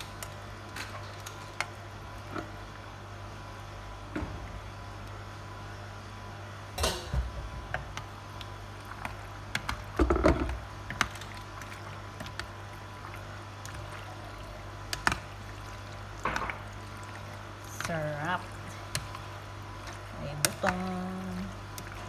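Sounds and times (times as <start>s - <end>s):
steady low hum: 0.0s - 22.0s
wet squishing of pasta: 10.9s - 22.0s.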